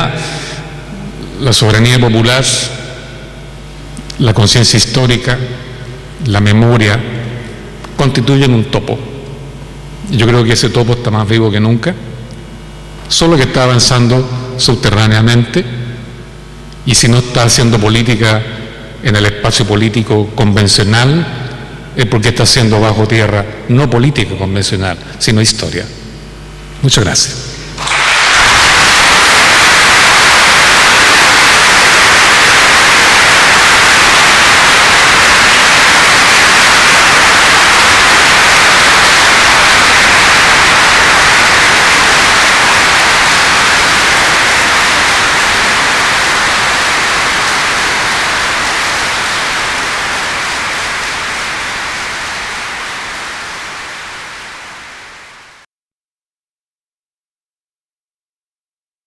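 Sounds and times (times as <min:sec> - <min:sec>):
audience applauding: 0:27.8 - 0:55.6.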